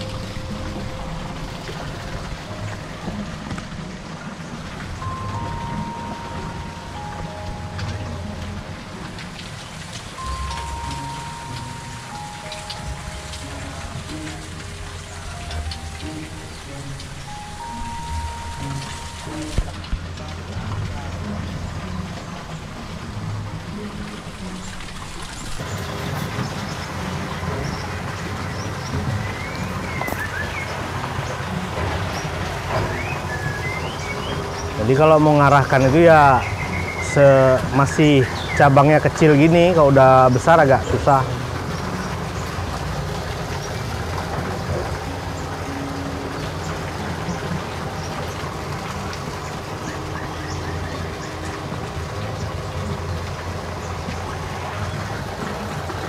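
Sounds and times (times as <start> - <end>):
fountain water rushing: 0.0 - 56.0
low rumble and hiss: 0.0 - 56.0.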